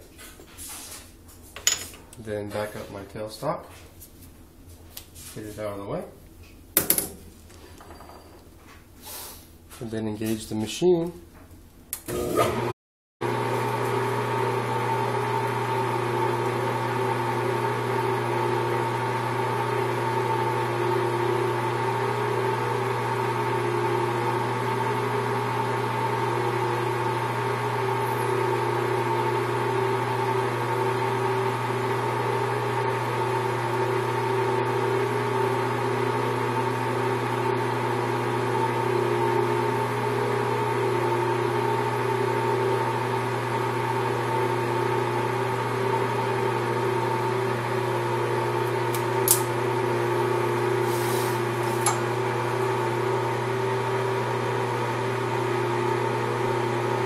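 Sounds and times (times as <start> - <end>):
metal lathe motor humming: 48.0 - 57.0.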